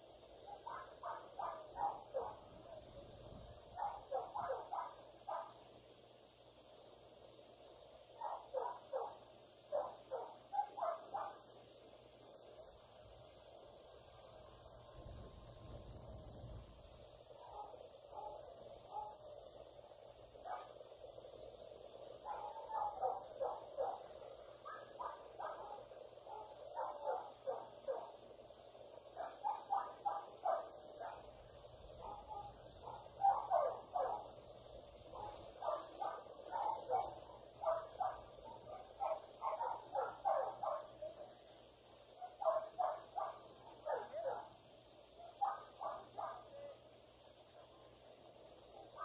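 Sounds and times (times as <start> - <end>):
dog barking and yipping: 0.4 - 2.5, 3.8 - 5.6, 8.2 - 11.5, 17.4 - 19.2, 20.4 - 20.8, 22.2 - 28.2, 29.1 - 31.4, 32.0 - 34.4, 35.1 - 41.4, 42.2 - 44.6, 45.2 - 46.7.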